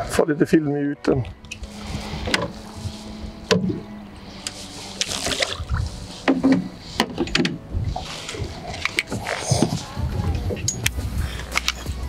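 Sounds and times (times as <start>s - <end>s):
water splashing: 1.5s - 10.1s.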